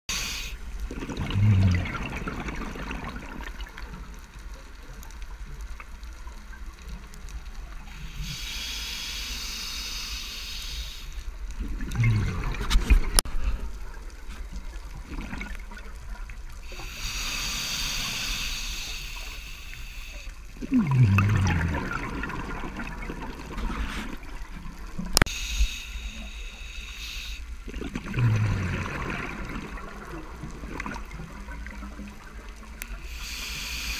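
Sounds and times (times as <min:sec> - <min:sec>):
regulator hissing inhalations: 0:00.1 - 0:00.6, 0:07.9 - 0:11.3, 0:16.7 - 0:20.4, 0:25.3 - 0:27.5, 0:32.9 - 0:33.9
bubbling exhaust: 0:00.9 - 0:03.8, 0:20.6 - 0:25.2, 0:27.6 - 0:32.2.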